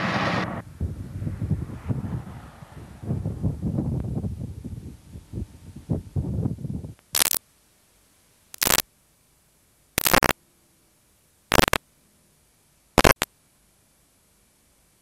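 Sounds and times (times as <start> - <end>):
videotape static hiss bursts: 7.0 - 7.5, 8.2 - 8.9, 9.9 - 10.4, 11.4 - 11.9, 12.9 - 13.4.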